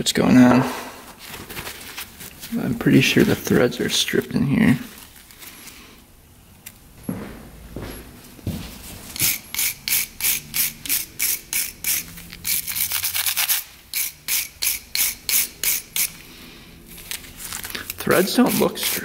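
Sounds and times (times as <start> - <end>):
scrubbing strokes on metal threads: 9.1 - 16.3, 17.9 - 19.0.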